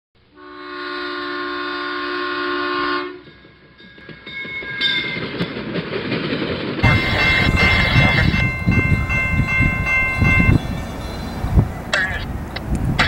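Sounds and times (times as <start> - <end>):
moving train rumble: 0.2 - 13.0
locomotive air horn: 0.3 - 3.2, 6.8 - 8.8.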